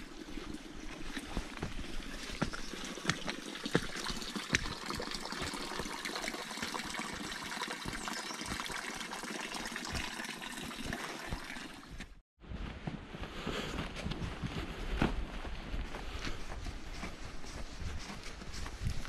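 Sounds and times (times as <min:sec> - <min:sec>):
water trickling and splashing: 0:00.0 - 0:12.2.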